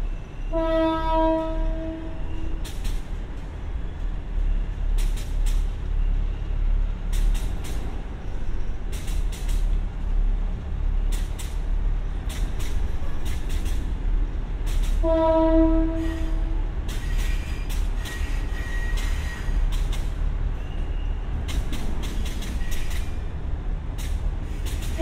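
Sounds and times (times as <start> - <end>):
diesel railcar idling: 0.0 - 25.0
train horn: 0.5 - 2.5, 15.0 - 17.2.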